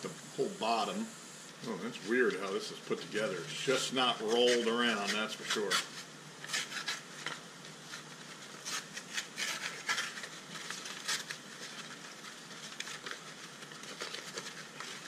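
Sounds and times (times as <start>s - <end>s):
paper rustling and crinkling: 2.1s - 15.0s
paper crackles: 2.2s - 15.0s.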